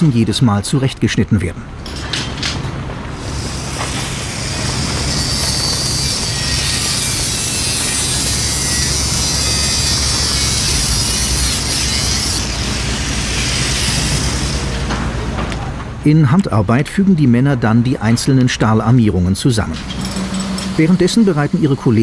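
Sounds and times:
angle grinder cutting metal pipe: 3.2 - 14.9, 19.8 - 22.0.

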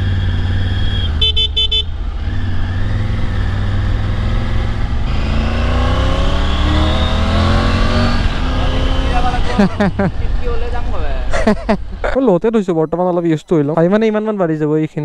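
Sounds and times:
motorcycle engine accelerating: 0.0 - 12.2
high beeping horn: 0.1 - 2.0, 5.1 - 9.5.

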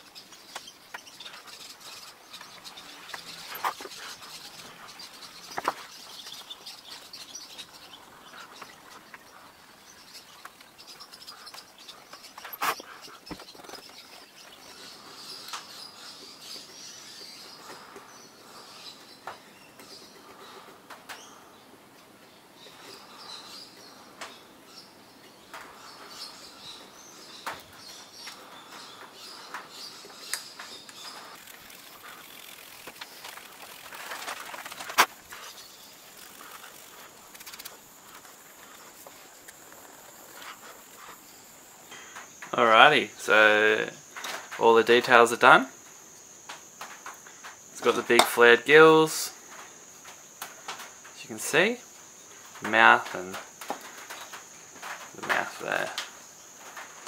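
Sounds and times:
hand tools scratching wood: 11.4 - 13.5.

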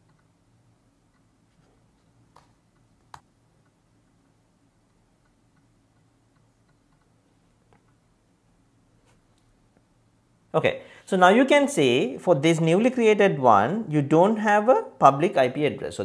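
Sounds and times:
low room hum: 0.0 - 16.0
computer mouse clicking: 2.0 - 8.0.

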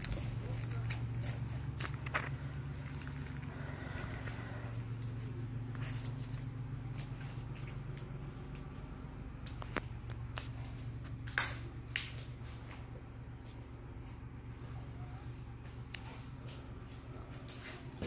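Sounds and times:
footsteps on wood: 0.0 - 5.0
steady low hum: 0.0 - 18.0.

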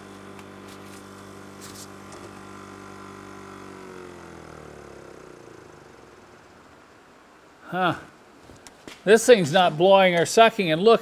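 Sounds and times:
electric pump motor humming: 0.0 - 7.6.

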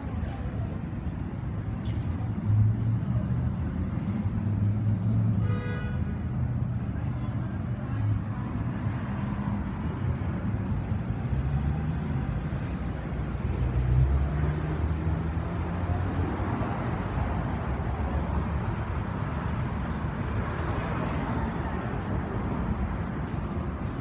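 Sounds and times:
street noise: 0.0 - 24.0
vehicle engine rumbling: 6.4 - 24.0.

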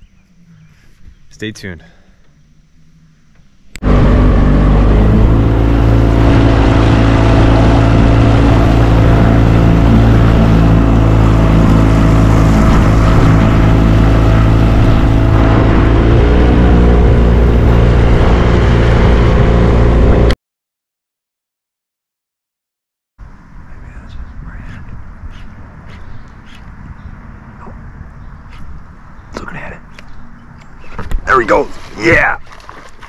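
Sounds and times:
boat motor running: 2.8 - 20.4.

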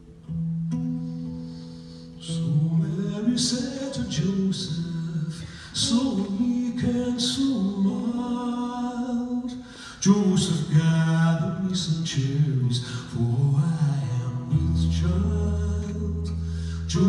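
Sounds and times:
singer breathing: 0.9 - 2.3, 5.3 - 5.8, 9.6 - 10.0, 12.8 - 13.1, 16.3 - 16.9
man singing a carol: 2.2 - 17.0.

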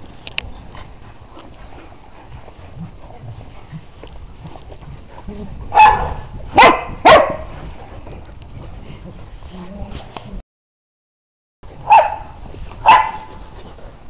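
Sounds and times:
dog barking: 5.7 - 7.5, 11.8 - 13.3.

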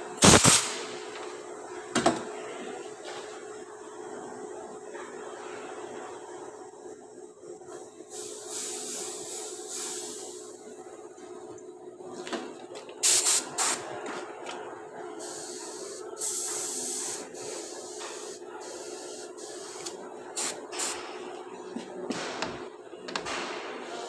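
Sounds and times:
hissing spray bursts: 0.2 - 0.8, 8.1 - 10.4, 13.0 - 13.8, 15.2 - 21.0.

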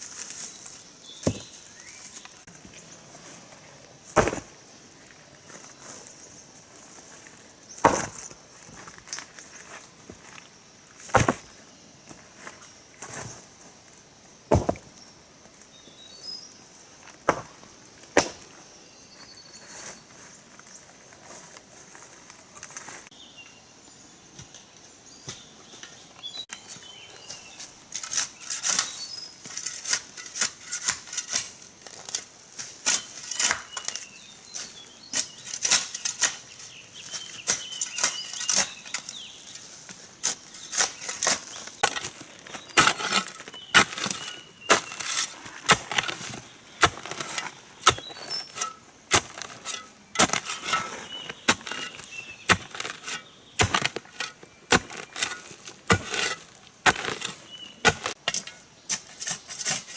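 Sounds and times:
hoe chopping into soil: 1.2 - 1.5, 4.1 - 4.5, 7.8 - 8.3, 11.1 - 11.5, 14.5 - 14.9, 17.2 - 18.5, 28.0 - 39.2, 40.2 - 59.9.

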